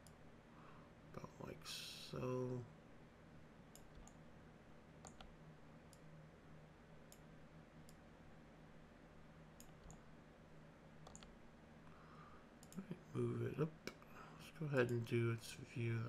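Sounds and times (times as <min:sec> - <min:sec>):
low steady hum: 0:00.0 - 0:16.0
computer mouse clicks: 0:03.7 - 0:04.2, 0:05.0 - 0:05.3, 0:05.9 - 0:06.1, 0:07.0 - 0:08.0, 0:09.6 - 0:10.1, 0:11.0 - 0:11.4, 0:12.6 - 0:12.8.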